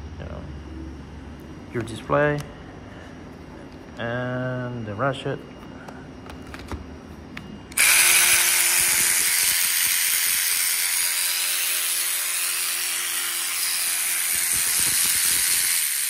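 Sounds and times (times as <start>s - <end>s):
power ratchet whirring: 7.7s - 16.0s.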